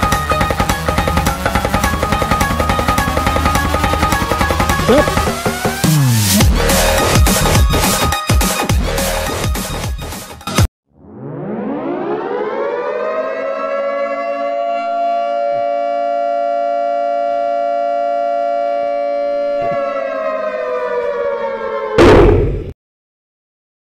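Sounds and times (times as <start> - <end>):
air-raid siren wailing: 0.0 - 5.8, 11.0 - 22.6.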